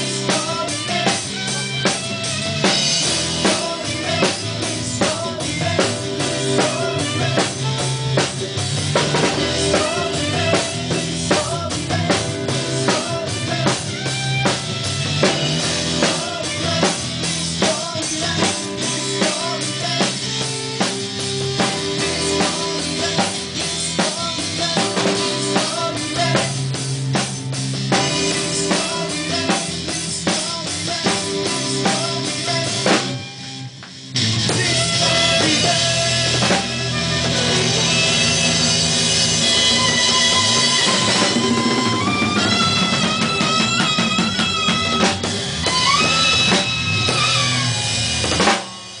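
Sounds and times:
drum kit: 0.0 - 49.0
saxophone playing: 0.1 - 5.0, 6.4 - 8.6, 9.2 - 11.6, 12.6 - 17.5, 27.9 - 30.1, 34.6 - 48.6
congas: 34.5 - 49.0.

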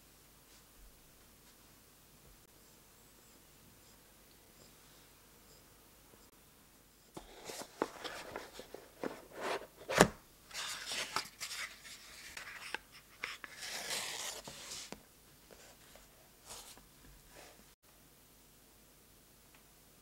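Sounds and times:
cardboard scraping and rubbing: 7.2 - 16.8.

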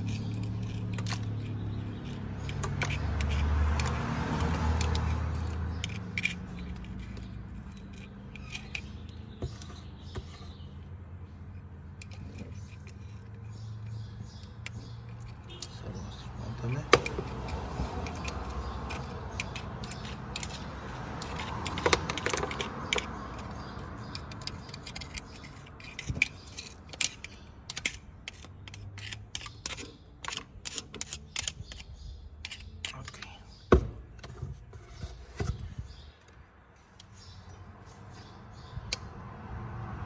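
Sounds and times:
small metallic clicks and clinks: 0.0 - 9.3, 16.9 - 33.5.

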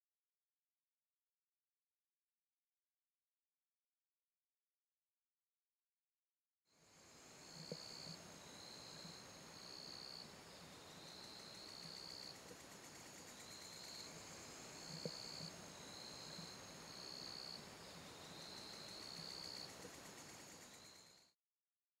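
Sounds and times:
steady high insect hum: 6.7 - 21.3
pulsing insect trill: 6.9 - 21.3
faint clicks: 18.6 - 20.8.

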